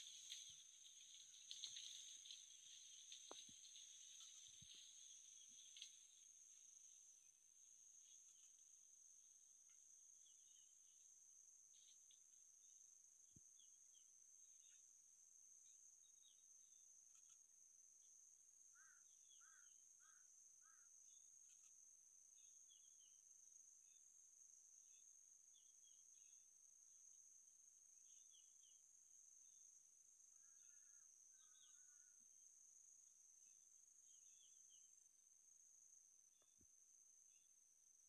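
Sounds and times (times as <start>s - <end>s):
small insect chirps: 0.0s - 7.2s
faint insect drone: 0.0s - 38.0s.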